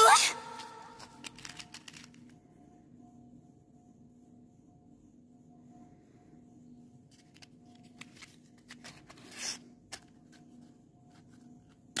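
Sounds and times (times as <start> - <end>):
matchbox taps and rustles: 1.0 - 2.3.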